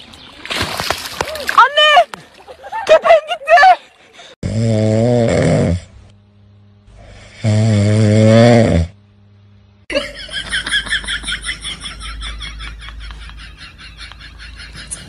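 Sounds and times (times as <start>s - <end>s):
dog snoring: 4.4s - 5.9s, 7.0s - 9.0s.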